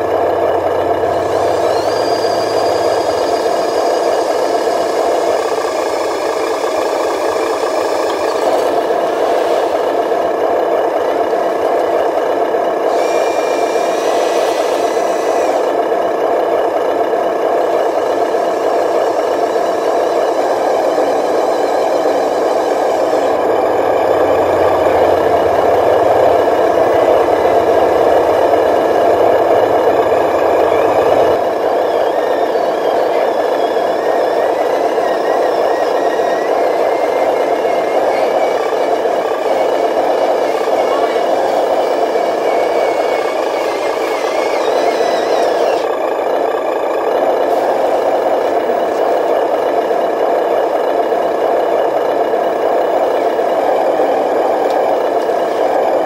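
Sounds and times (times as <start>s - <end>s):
high whine: 0.0s - 56.0s
toy truck mechanical drone and rattle: 0.0s - 56.0s
low hum: 14.6s - 50.0s.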